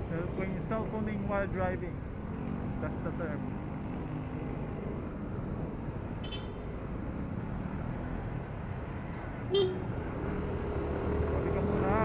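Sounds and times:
wind and road noise: 0.0s - 12.0s
vehicle horn beep: 9.5s - 9.8s.

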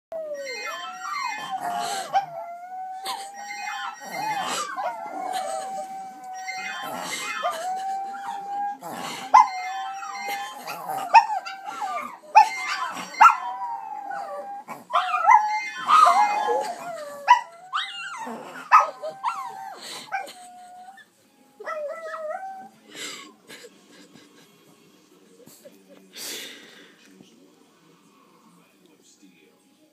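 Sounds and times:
dogs howling and yipping: 0.1s - 22.8s.

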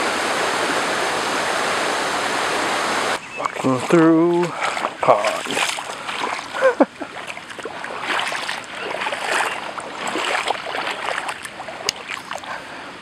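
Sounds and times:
water rushing: 0.0s - 13.0s
footsteps sloshing through water: 3.2s - 12.8s.

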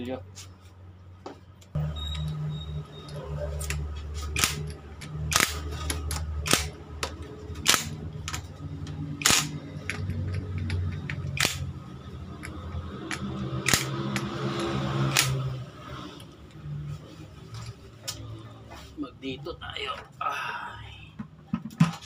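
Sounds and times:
metallic clicks and knocks: 3.6s - 15.4s.

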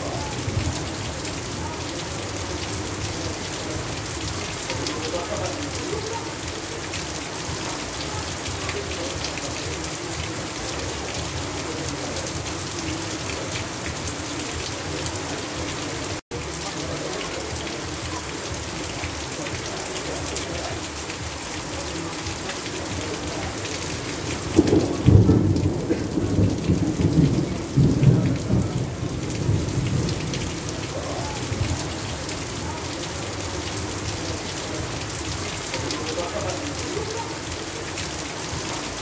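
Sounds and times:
heavy rain falling: 0.0s - 39.0s
thunder rumbling: 24.3s - 32.6s.

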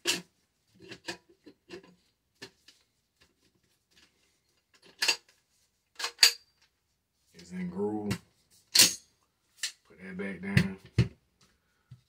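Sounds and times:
light metal clicks and rubs: 0.0s - 6.8s.

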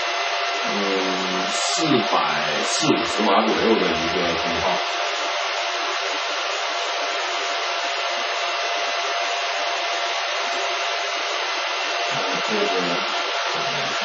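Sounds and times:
cooling fans rushing air: 0.0s - 14.0s
faint steady fan whine: 0.0s - 14.0s.

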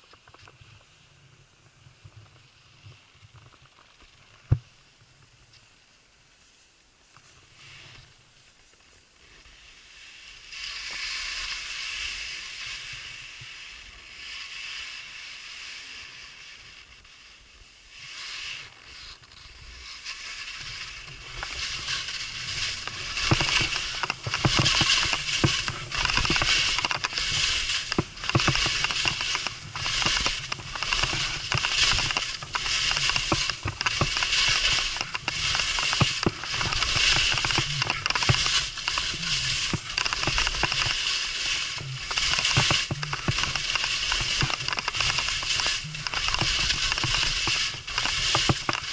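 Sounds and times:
skis scraping on snow: 0.0s - 48.9s.

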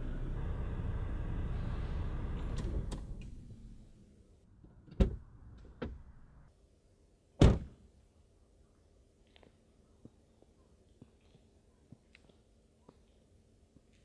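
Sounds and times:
car engine running: 0.0s - 4.0s
car door slamming: 7.4s - 7.7s.

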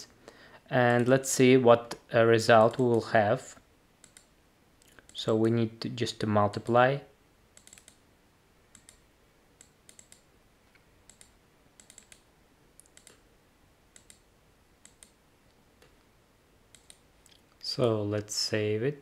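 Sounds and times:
computer mouse clicks: 4.0s - 5.2s, 7.6s - 8.0s, 8.7s - 9.0s, 9.6s - 13.2s, 13.9s - 15.2s, 16.7s - 17.9s.

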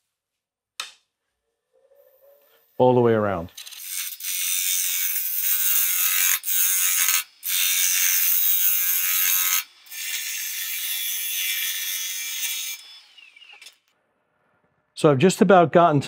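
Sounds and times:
lathe cutter hissing on wood: 3.6s - 13.7s.

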